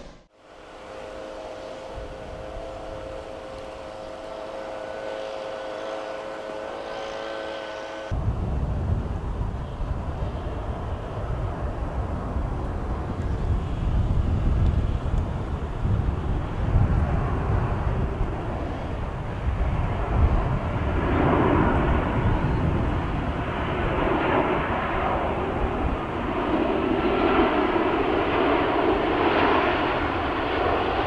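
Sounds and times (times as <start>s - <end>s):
airliner low rumble: 0.0s - 31.0s
airliner multi-tone whine: 0.0s - 31.0s.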